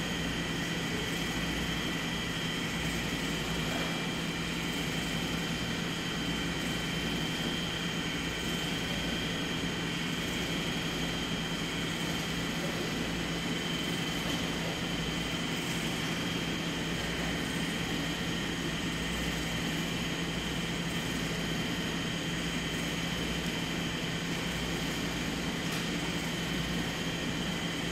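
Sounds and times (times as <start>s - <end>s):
machine hum with high whine: 0.0s - 27.9s.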